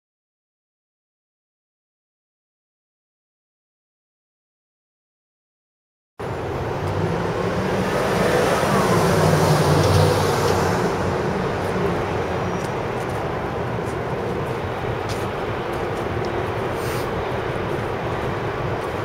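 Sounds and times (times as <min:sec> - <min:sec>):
low engine rumble: 0:06.2 - 0:19.0
traffic hum: 0:06.2 - 0:19.0.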